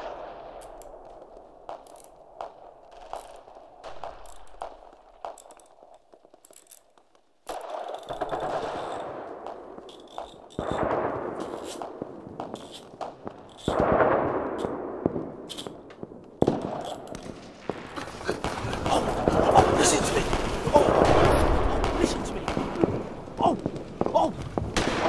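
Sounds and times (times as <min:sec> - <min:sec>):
bursts of crackling gunfire: 0:00.0 - 0:06.4, 0:07.1 - 0:25.0.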